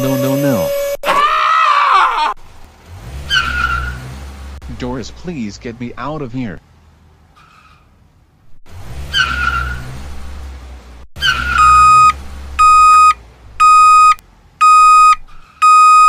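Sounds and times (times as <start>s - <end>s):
truck engine rumbling: 2.3s - 16.0s
reversing alarm beeps: 11.6s - 16.0s.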